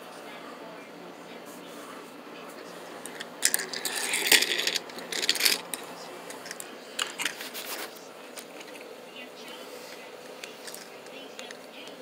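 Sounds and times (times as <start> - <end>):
small hard objects clattering: 3.4 - 5.8.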